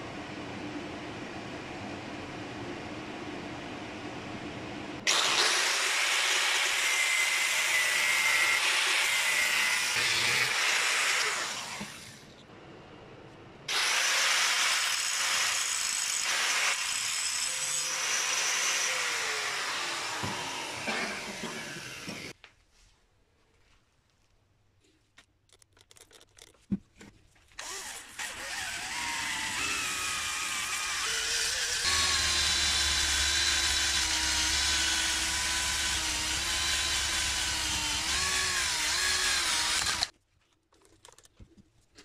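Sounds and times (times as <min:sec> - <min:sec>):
angle grinder grinding steel: 0:05.1 - 0:12.3, 0:27.6 - 0:40.1.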